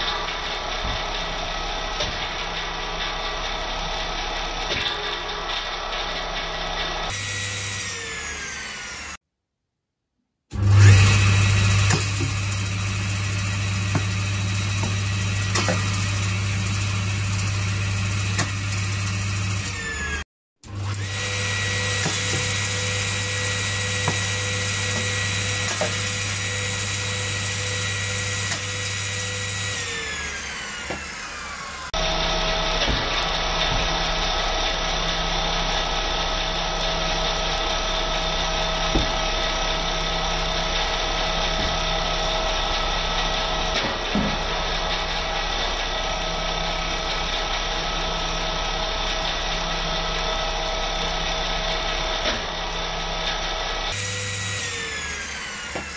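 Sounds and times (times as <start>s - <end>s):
circular saw whine: 0.0s - 9.2s, 10.6s - 55.9s.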